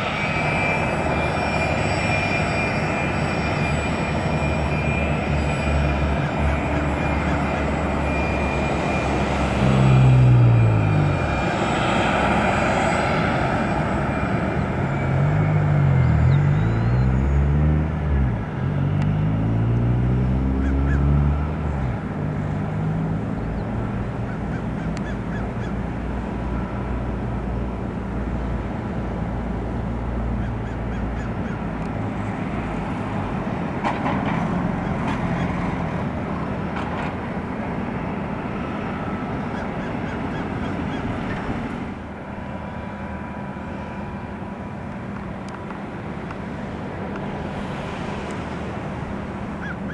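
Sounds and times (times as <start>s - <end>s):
helicopter turbine drone and whine: 0.0s - 17.0s, 34.6s - 49.9s
passing aircraft engine: 0.0s - 49.9s.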